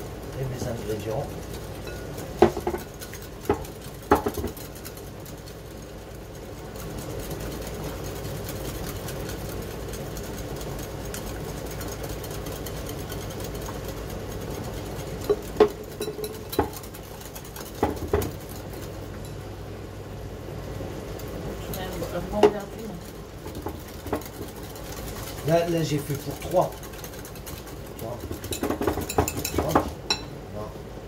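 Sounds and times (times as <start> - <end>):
jug and glass bowl clinking: 15.3 - 16.9, 28.1 - 30.4.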